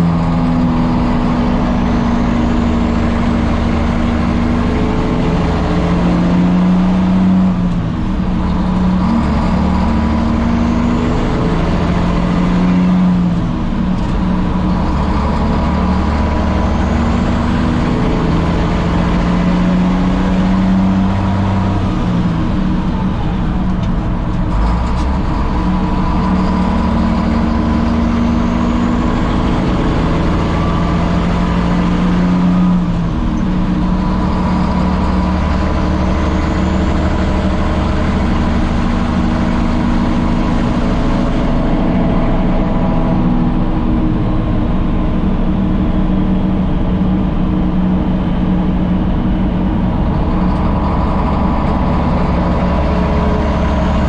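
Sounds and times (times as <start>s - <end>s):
truck diesel exhaust drone: 0.0s - 54.0s.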